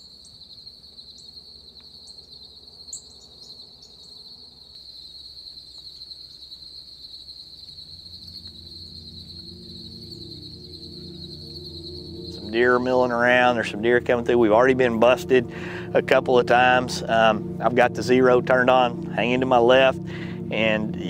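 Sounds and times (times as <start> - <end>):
insects trilling: 0.0 - 21.0
low sustained music notes: 7.4 - 21.0.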